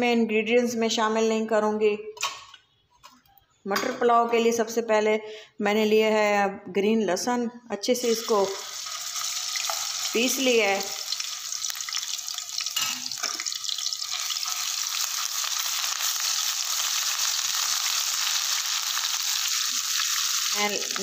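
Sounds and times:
paste sizzling in hot oil: 8.0 - 21.0.

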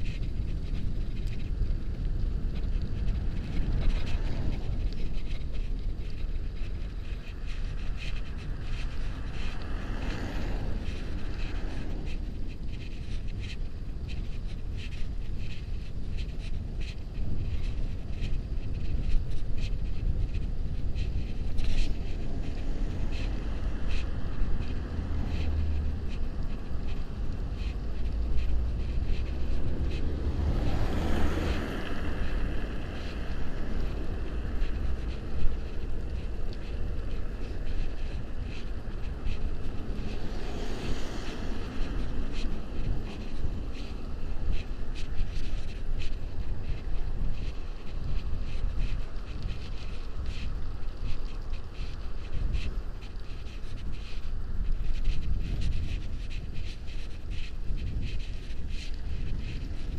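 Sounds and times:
tyre and road noise: 0.0 - 59.9
wind on microphone: 0.0 - 59.9
car passing: 3.1 - 13.6, 21.3 - 46.8
car passing close by: 30.1 - 32.9.

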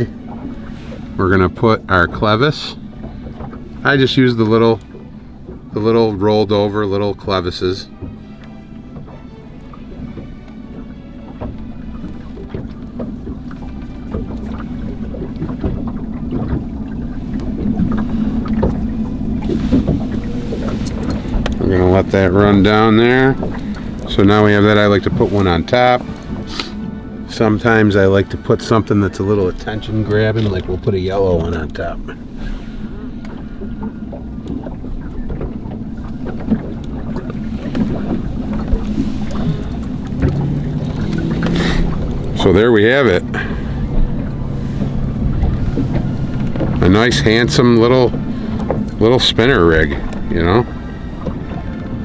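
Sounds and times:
boat motor humming: 0.0 - 52.0
fishing tackle clicks: 19.6 - 21.9, 22.8 - 26.7, 38.6 - 42.5, 44.9 - 49.2.

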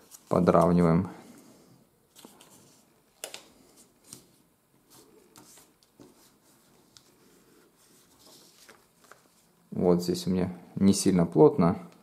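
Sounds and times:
glossy paper crinkling: 2.1 - 9.7.

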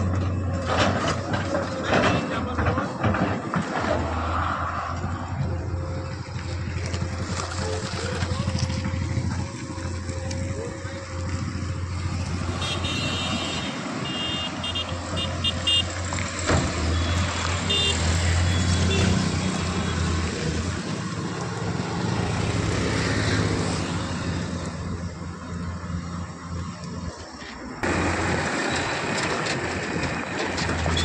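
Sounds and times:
heavy diesel machinery running: 0.0 - 31.0
passing road traffic: 0.0 - 31.0
vehicle horn beeps: 12.5 - 16.0, 16.8 - 20.0.

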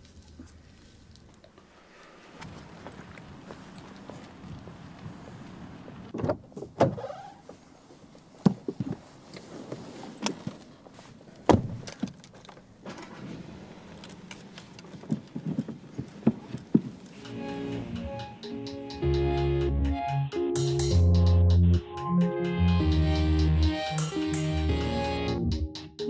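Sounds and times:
car door shutting with thud: 6.1 - 7.1, 11.5 - 12.1
clicks and rustles from car seat: 6.1 - 17.1.

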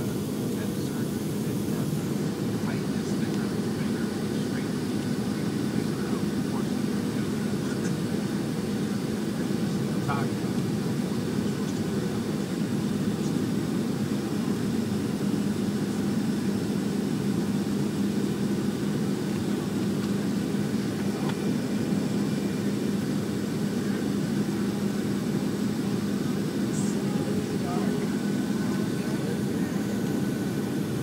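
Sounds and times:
airplane cabin drone: 0.0 - 31.0
low steady hum: 11.5 - 31.0.

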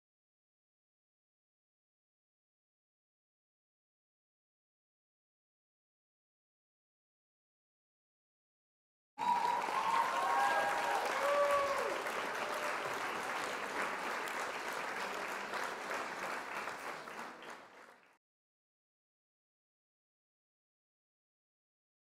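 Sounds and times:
people cheering: 9.2 - 17.9
crowd applause: 9.2 - 18.2.

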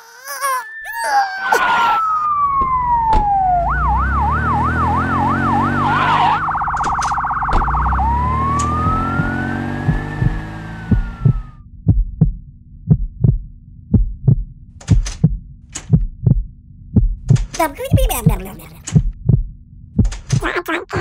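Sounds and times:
cartoon ambulance siren: 0.0 - 11.6
low vehicle rumble: 2.0 - 11.6.

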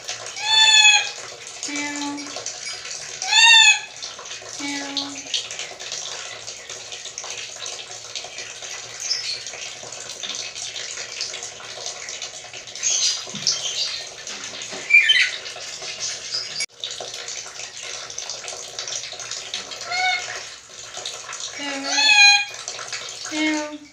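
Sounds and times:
parrot squeaky calls: 0.4 - 1.2, 2.6 - 3.9, 14.8 - 15.4, 19.8 - 20.4, 21.8 - 22.5.

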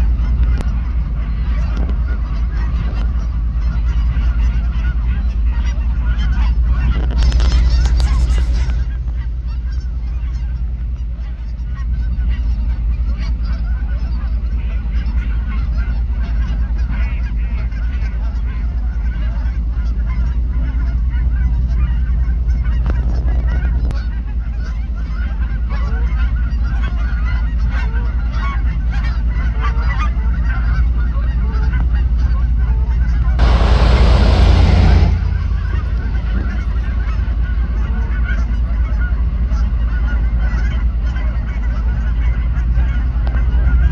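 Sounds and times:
steady low rumble: 0.0 - 25.8, 30.2 - 43.9
geese honking: 0.0 - 43.9
loud rushing noise: 33.4 - 37.8.

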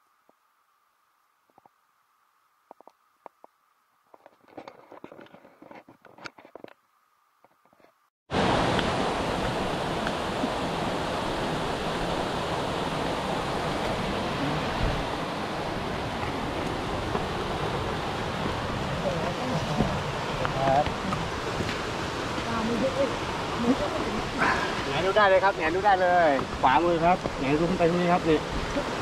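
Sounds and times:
faint clicks and rustles: 2.6 - 6.8
rush of flowing water: 8.3 - 29.0.

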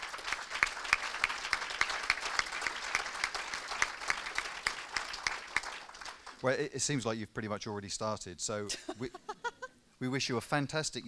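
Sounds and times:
close hands clapping: 0.0 - 6.5
audience applauding: 0.0 - 6.6.

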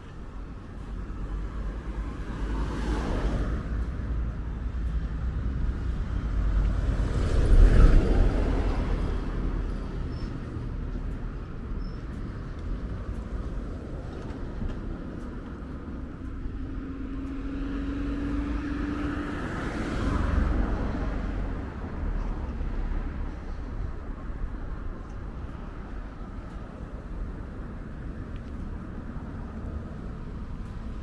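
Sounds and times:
road traffic passing: 0.0 - 31.0
vehicle passing close: 15.7 - 22.8.

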